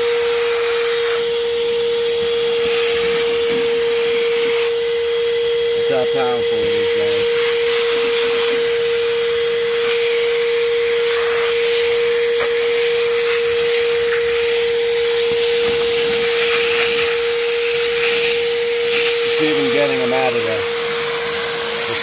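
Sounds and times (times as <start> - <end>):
shop vacuum motor whine: 0.0 - 22.0
vacuum sucking debris: 5.6 - 22.0.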